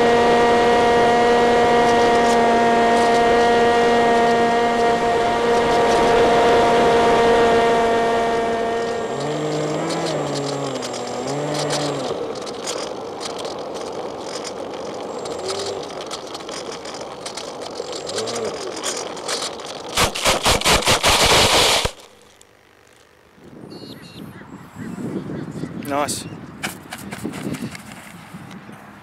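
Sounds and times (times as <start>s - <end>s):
plane skidding across grass: 0.0s - 22.3s
model plane electric motor: 0.0s - 23.4s.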